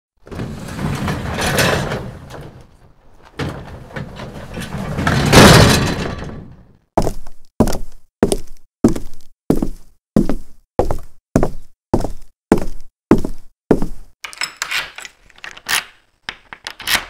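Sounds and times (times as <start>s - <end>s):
crashing and banging: 0.2s - 6.8s.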